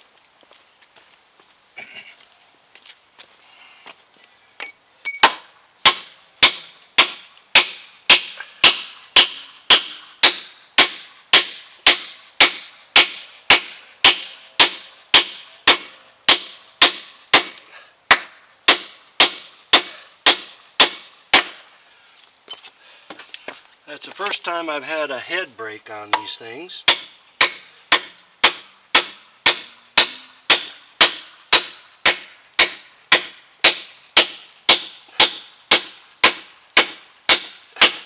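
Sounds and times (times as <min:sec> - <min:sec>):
hammer striking metal spike: 0:04.6 - 0:21.6, 0:26.1 - 0:38.0.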